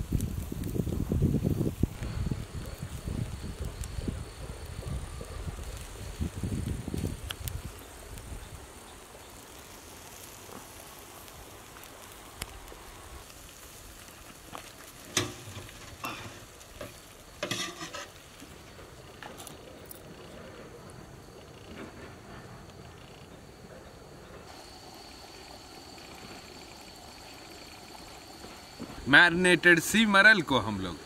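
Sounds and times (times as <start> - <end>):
fish sizzling on grill: 0.0 - 20.3, 24.4 - 31.0
wire grill clattering: 15.1 - 18.2.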